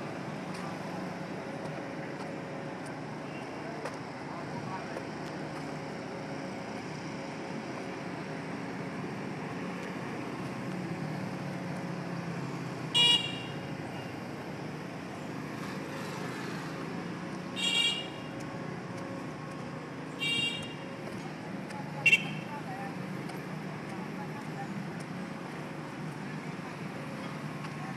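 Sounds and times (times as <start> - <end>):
street traffic engine hum: 0.0 - 27.9
vehicle horn toots: 13.0 - 13.6, 17.6 - 18.3, 20.2 - 20.8.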